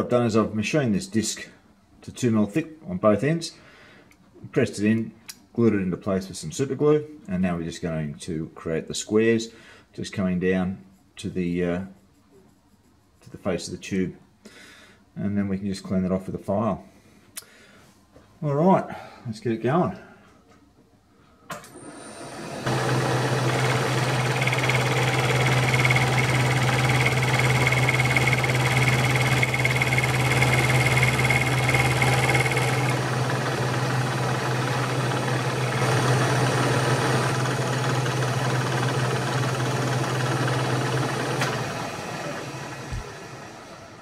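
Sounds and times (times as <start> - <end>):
milling machine motor running: 22.5 - 43.8
end mill cutting metal whine: 22.6 - 43.8.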